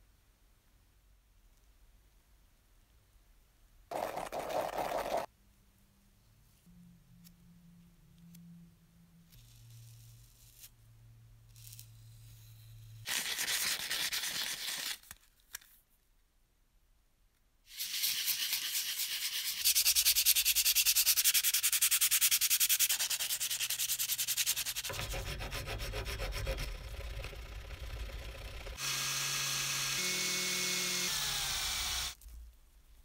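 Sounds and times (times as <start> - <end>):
metal rubbing on abrasive: 22.0 - 28.2
file scraping metal: 24.7 - 28.2
electric drill running: 26.7 - 32.2.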